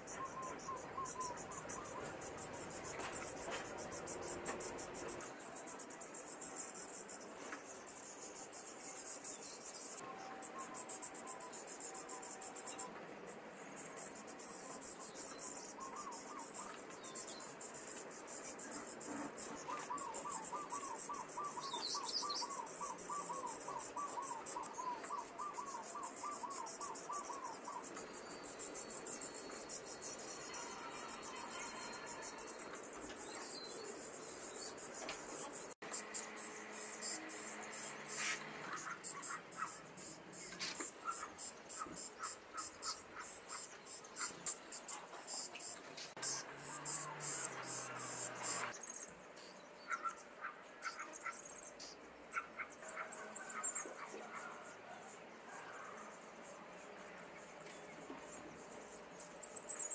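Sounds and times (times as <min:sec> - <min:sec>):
nestlings begging rasping chorus: 0:18.5 - 0:48.8.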